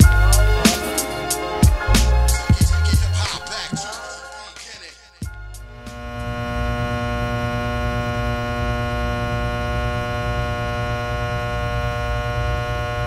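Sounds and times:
low electrical hum: 5.3 - 13.0.

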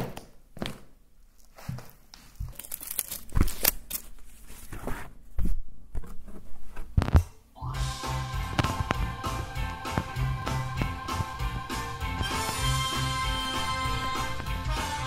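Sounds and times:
paper and card rustling: 1.6 - 5.2.

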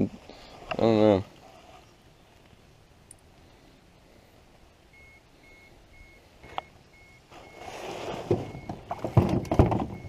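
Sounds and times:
faint electronic beeps: 4.7 - 10.0
knocks on aluminium canoe floor: 8.9 - 10.0.

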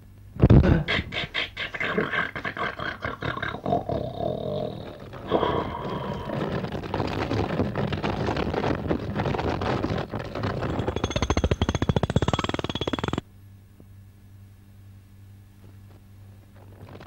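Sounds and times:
rattling clatter: 5.1 - 13.2.

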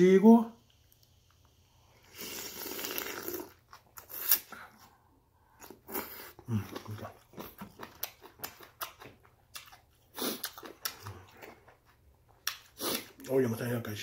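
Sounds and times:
sip from a spoon: 2.0 - 4.5
person slurping noodles: 2.0 - 4.6, 10.1 - 11.5, 12.7 - 13.2
wet chewing and smacking: 5.5 - 13.3.

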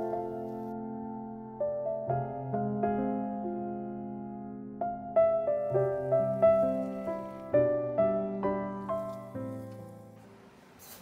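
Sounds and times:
solo piano melody: 0.0 - 11.0.

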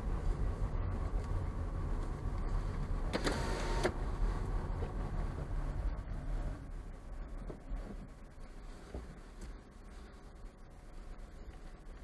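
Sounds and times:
car road and engine rumble: 0.0 - 12.0
brief mechanical whir: 3.2 - 4.0.

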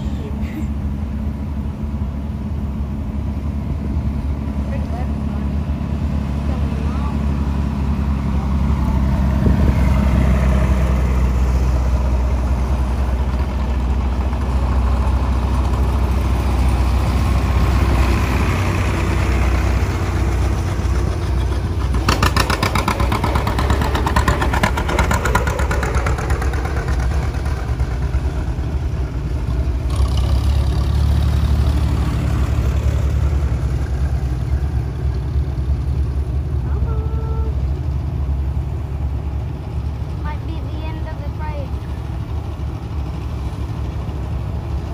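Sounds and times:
tractor engines droning: 0.0 - 44.9
tractor exhaust popping: 20.3 - 35.4.

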